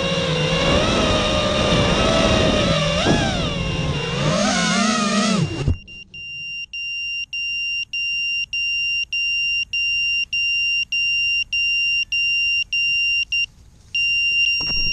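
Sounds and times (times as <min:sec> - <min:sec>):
high-pitched buzzer beeping: 0:11.3 - 0:14.9.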